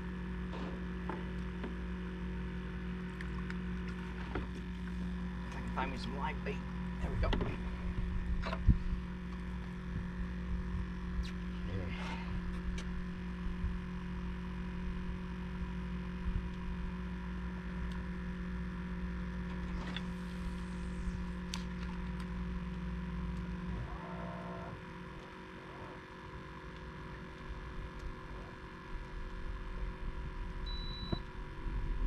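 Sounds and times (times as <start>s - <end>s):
electric motor humming: 18.3s - 30.6s.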